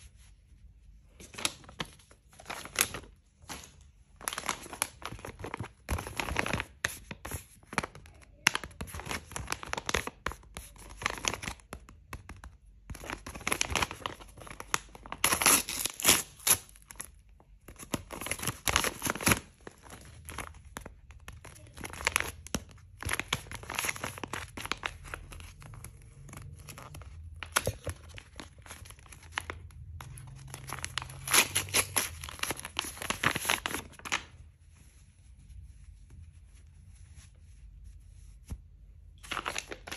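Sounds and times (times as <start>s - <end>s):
paper tearing and crumpling: 13.2s - 16.8s, 30.2s - 34.3s.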